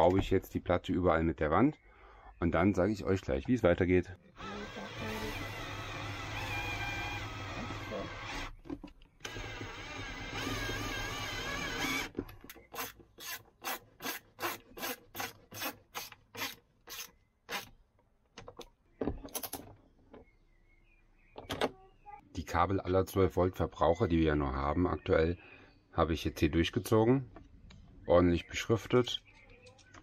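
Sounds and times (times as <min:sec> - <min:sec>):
screwdriver whirring: 0:04.4 - 0:08.6, 0:09.2 - 0:17.7.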